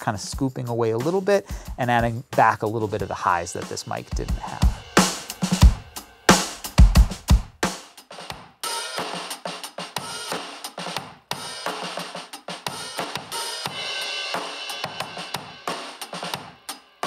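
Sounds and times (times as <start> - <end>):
drum kit playing a groove: 0.0 - 17.0.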